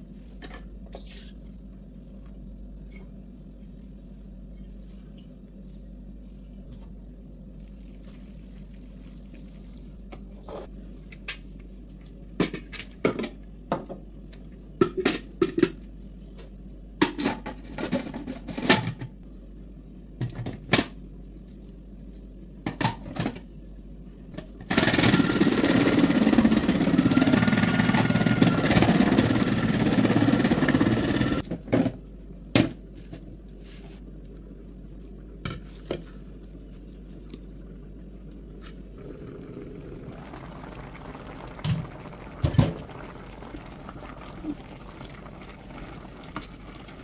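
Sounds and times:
food processor shredding vegetable: 24.7s - 31.4s.

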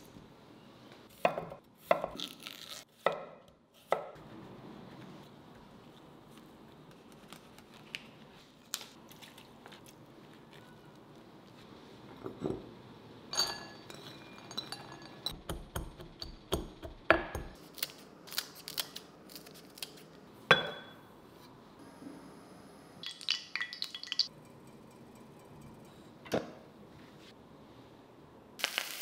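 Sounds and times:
ceramic dishes clinking: 13.3s - 15.4s, 20.5s - 21.0s.

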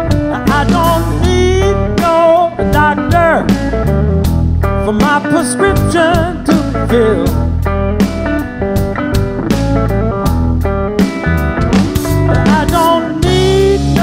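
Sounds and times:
bass guitar: 0.0s - 14.0s
electric guitar lead: 0.0s - 14.0s
drum hits: 8.8s - 13.5s.

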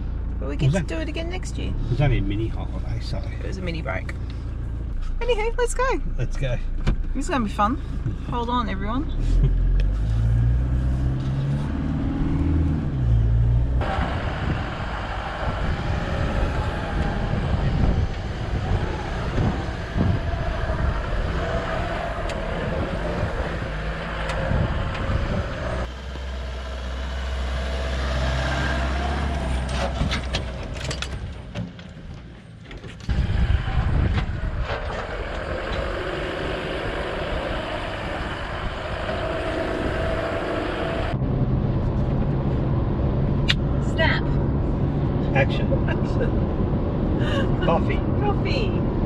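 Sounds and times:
vehicle engine running: 0.0s - 27.9s
wind noise: 9.1s - 25.9s, 32.9s - 49.0s.

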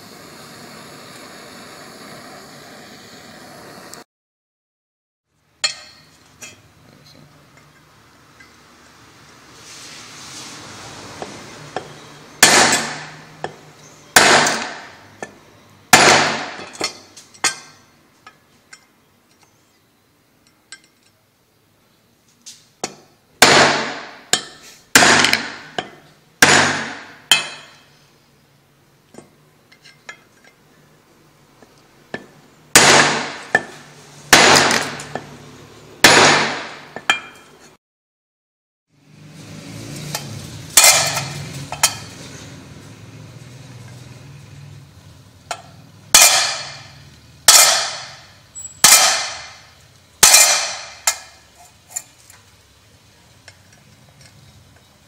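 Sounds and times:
hammer striking steel punch: 5.6s - 6.1s, 11.8s - 13.6s, 14.2s - 15.0s, 15.9s - 17.7s, 22.8s - 27.8s, 32.2s - 35.3s, 45.5s - 51.4s.

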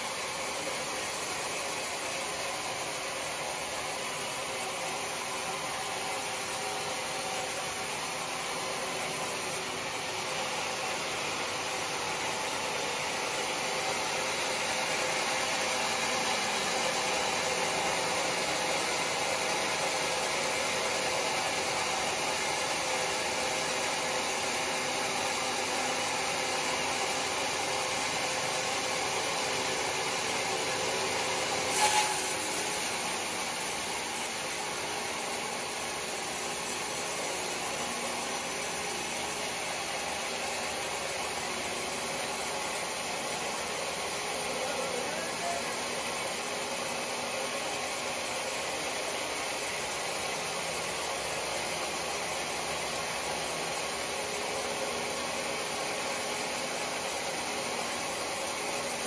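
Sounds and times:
sawmill machine hum: 0.0s - 59.0s
band saw blade hissing through wood: 31.6s - 33.3s.

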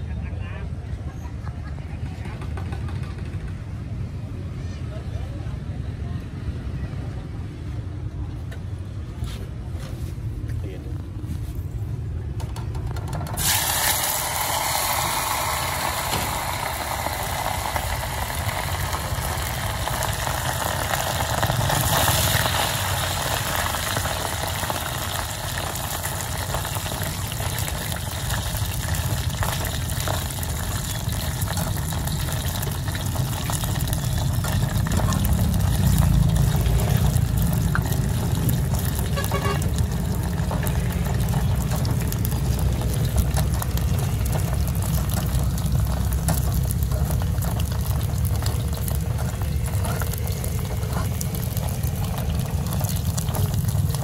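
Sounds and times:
low steady rumble: 10.2s - 54.0s
meatballs sizzling in oil: 13.4s - 54.0s.

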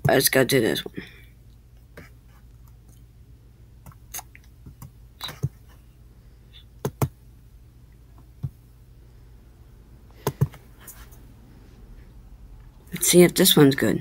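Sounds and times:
low steady hum: 0.0s - 14.0s
computer clicks and taps: 6.8s - 7.2s, 10.2s - 10.6s.

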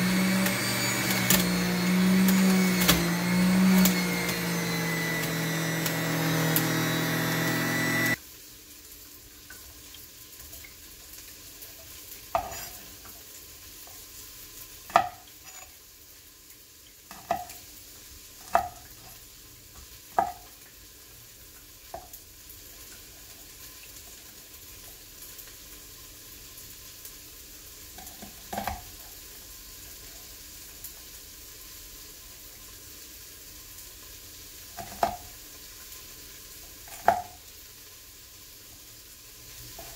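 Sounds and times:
juicer motor running: 0.0s - 8.2s.

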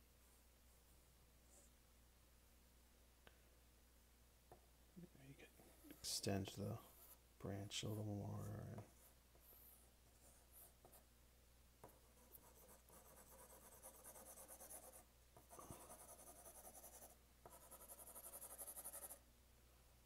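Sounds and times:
pencil shading on paper: 11.8s - 19.2s.

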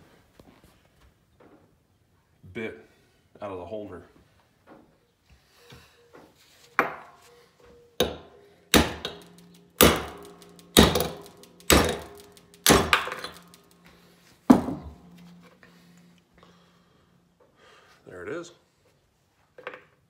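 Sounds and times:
hammer striking steel punch: 8.0s - 15.4s.

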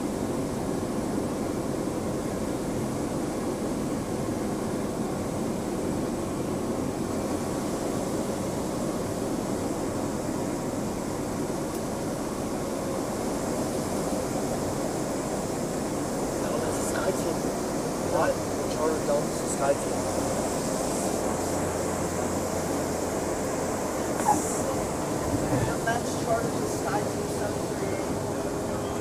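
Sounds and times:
faint high whine: 0.0s - 29.0s
turboprop engine rumble: 0.0s - 29.0s.

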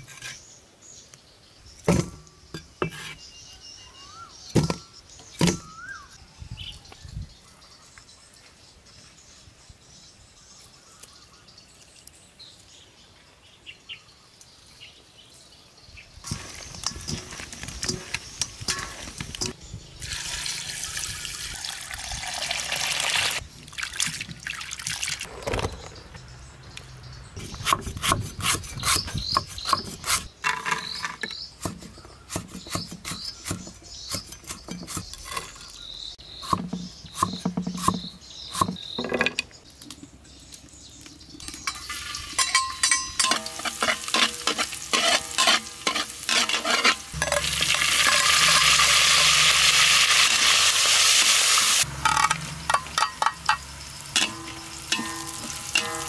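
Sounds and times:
birds chirping: 0.0s - 24.0s, 24.8s - 50.6s
water pouring: 20.0s - 25.8s, 47.1s - 51.9s.

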